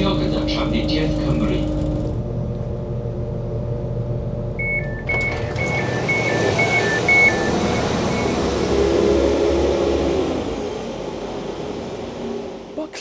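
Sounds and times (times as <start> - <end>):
train running rumble: 0.0 - 13.0
two-tone train door beeping: 4.6 - 9.3.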